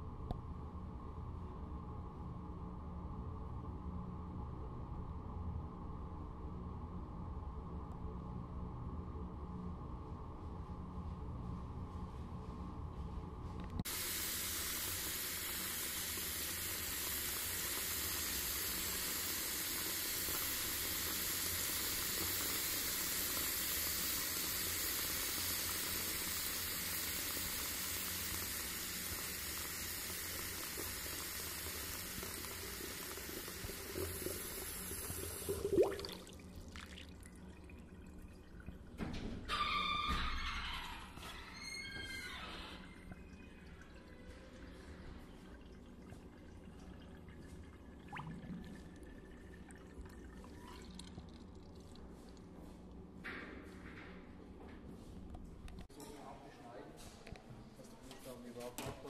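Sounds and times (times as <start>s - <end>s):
steady rushing hiss: 13.8s - 35.5s.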